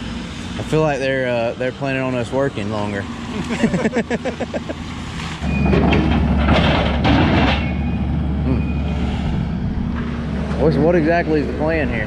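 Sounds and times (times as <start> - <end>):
diesel engine rumbling: 0.0 - 12.0.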